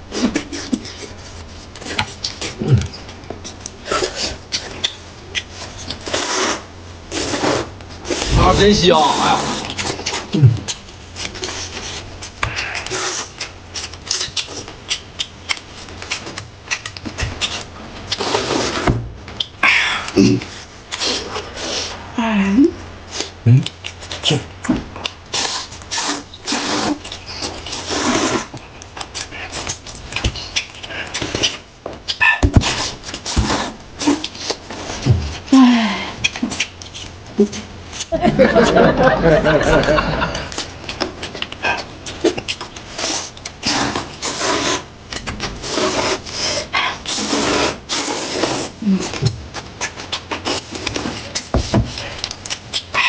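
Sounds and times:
people slurping noodles: 6.0s - 14.6s, 19.9s - 22.1s, 25.3s - 28.5s, 45.6s - 49.3s.

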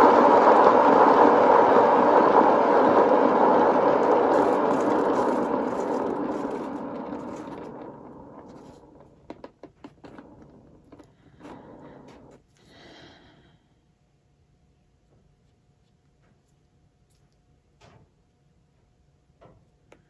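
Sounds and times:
hairdryer blowing: 0.0s - 9.0s.

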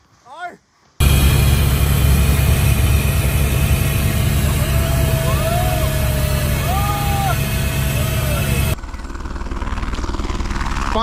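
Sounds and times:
helicopter rotor and engine drone: 1.0s - 11.0s
faint voices: 3.2s - 8.8s.

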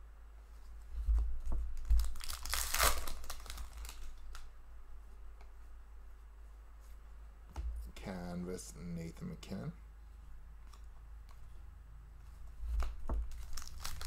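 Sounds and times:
papery rustle: 0.5s - 4.4s, 12.4s - 14.0s.

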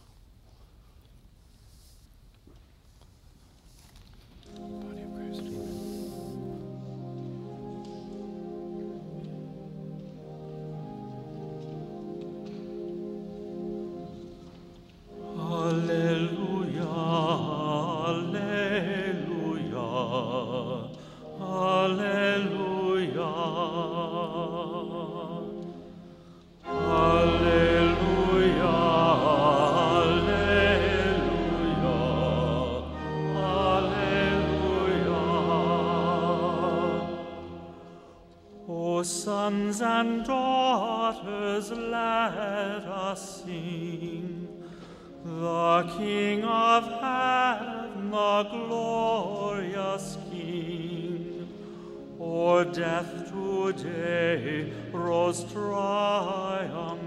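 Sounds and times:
choir singing a hymn: 15.1s - 57.0s.

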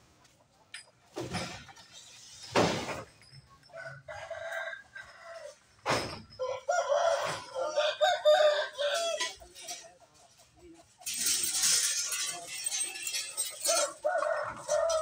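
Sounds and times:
crates knocking and clattering: 1.0s - 3.4s
rooster crowing: 6.4s - 9.2s.

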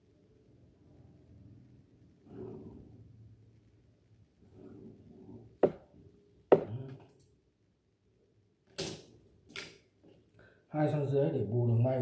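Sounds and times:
rulers knocking on table: 5.6s - 5.9s, 6.5s - 6.9s.

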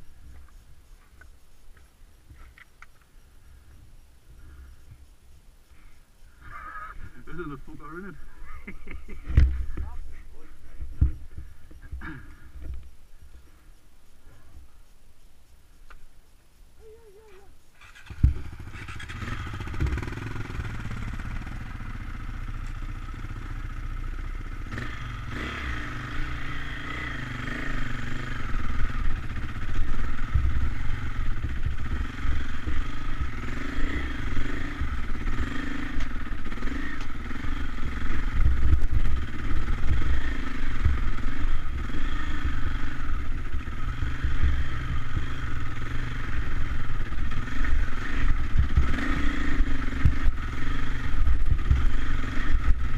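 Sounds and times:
dirt bike engines revving: 5.6s - 14.8s, 16.8s - 52.9s.

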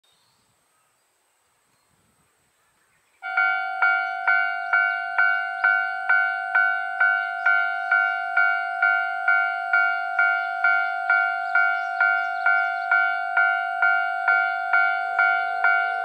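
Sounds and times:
level crossing warning bell: 3.2s - 16.0s.

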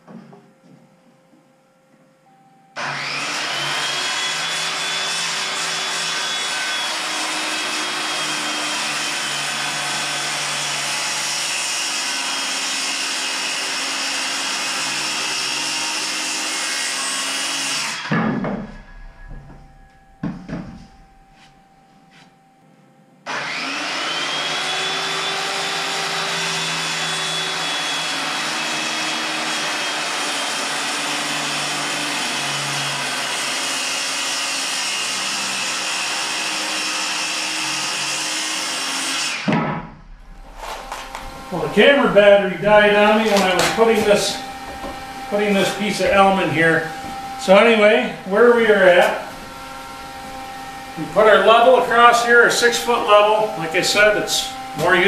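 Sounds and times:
circular saw motor whine: 2.7s - 10.1s, 23.2s - 29.8s, 35.0s - 55.0s
thump and knocks: 18.0s - 21.5s, 39.5s - 41.2s.

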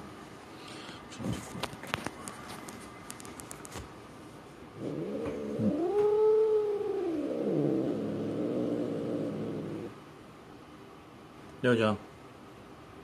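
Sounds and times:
faint rustling clicks: 1.5s - 3.9s
cat yowling: 4.9s - 9.9s.

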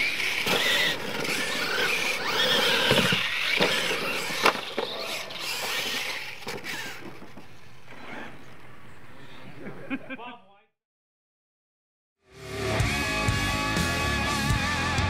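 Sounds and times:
electric motors whining: 0.0s - 9.6s.

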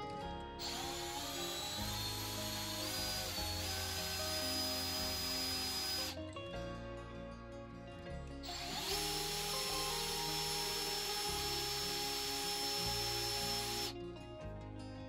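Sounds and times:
background music: 0.0s - 15.0s
cordless drill boring into metal: 0.6s - 6.2s, 8.4s - 14.0s.

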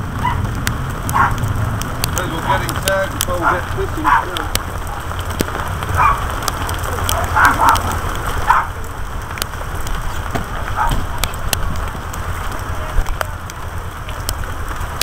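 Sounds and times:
scattered clicks: 0.5s - 3.4s
muffled voices: 2.1s - 5.2s.

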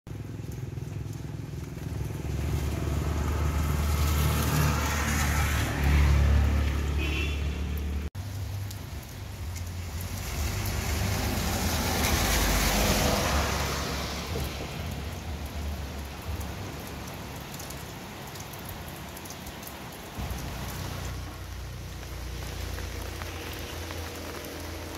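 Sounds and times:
steady rain: 0.1s - 24.9s
vehicles passing on wet road: 0.1s - 24.9s.

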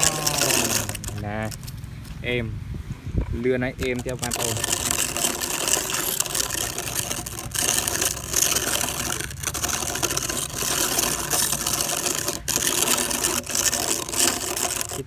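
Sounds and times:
toy truck gears whirring: 0.0s - 1.8s, 3.6s - 15.0s.

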